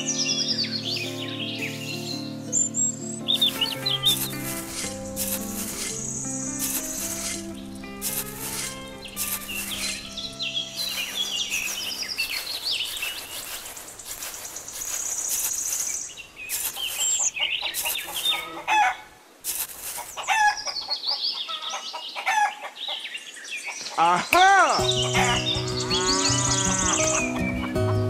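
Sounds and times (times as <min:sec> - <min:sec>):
birds chirping rapidly: 0:00.0 - 0:28.0
trowel scraping sand: 0:03.3 - 0:20.6
chickens clucking: 0:03.3 - 0:23.1, 0:23.7 - 0:28.0.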